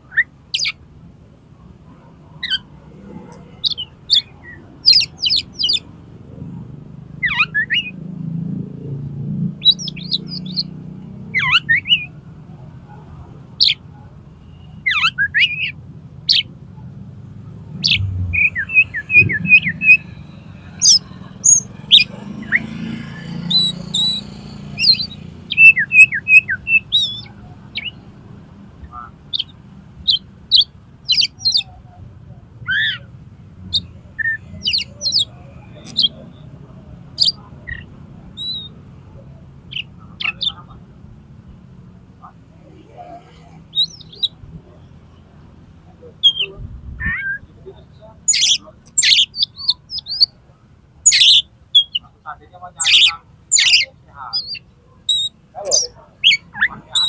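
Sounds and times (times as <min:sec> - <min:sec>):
bird singing whistled song: 0:00.1 - 0:00.8, 0:07.2 - 0:08.0, 0:09.6 - 0:10.8, 0:11.4 - 0:12.1, 0:14.4 - 0:16.5, 0:17.8 - 0:22.8, 0:23.4 - 0:28.0, 0:32.7 - 0:33.1, 0:38.4 - 0:38.7, 0:48.3 - 0:50.3, 0:51.1 - 0:52.1, 0:52.8 - 0:57.0.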